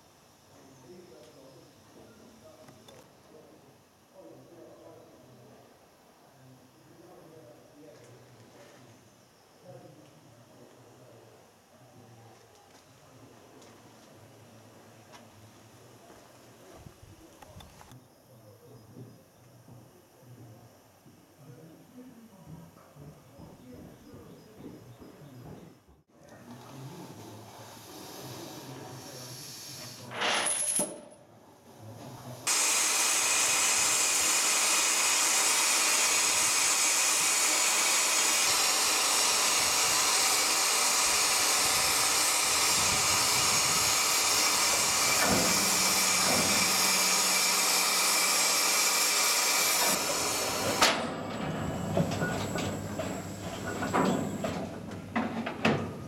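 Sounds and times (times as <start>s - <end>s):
loud steam hiss: 26.8s - 30.6s, 32.4s - 54.7s.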